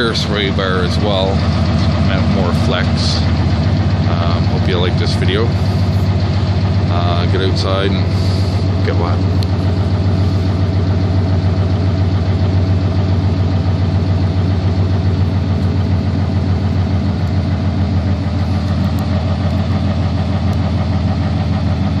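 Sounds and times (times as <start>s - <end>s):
engine idling: 0.0s - 22.0s.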